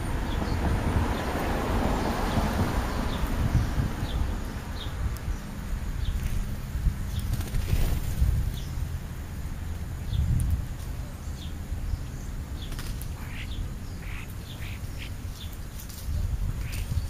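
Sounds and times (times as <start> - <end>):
flutter of wings: 7.1 - 8.7, 12.6 - 13.2.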